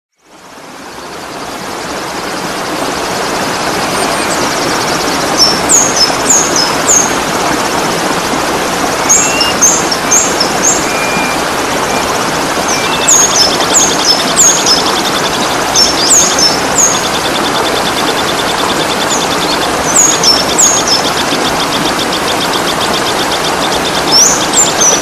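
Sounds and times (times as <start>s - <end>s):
waterfall rushing: 0.4s - 25.0s
birds chirping: 0.9s - 25.0s
bird trill and whistles: 9.1s - 12.1s, 12.7s - 15.2s.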